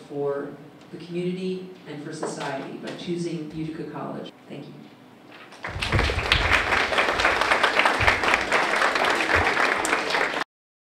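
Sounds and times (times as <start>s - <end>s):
audience applauding: 5.5s - 10.5s.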